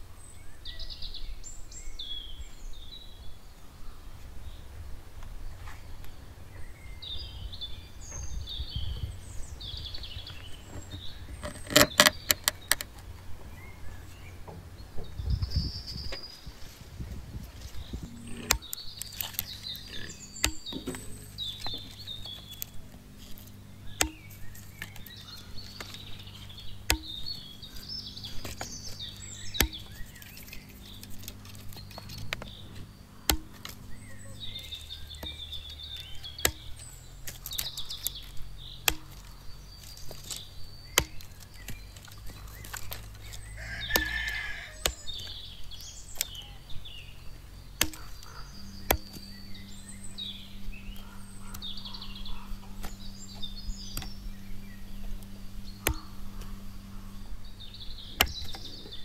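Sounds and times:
hatchet chopping branches on wood: 10.0 - 13.0, 17.6 - 59.0.

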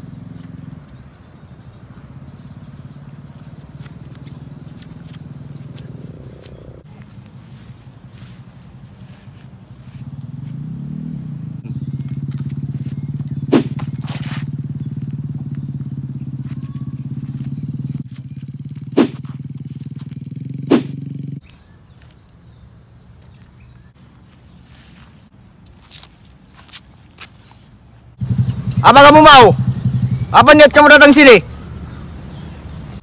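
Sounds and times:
faint outdoor background: 0.0 - 33.0
sharp hits: 13.4 - 14.4, 20.6 - 21.1.

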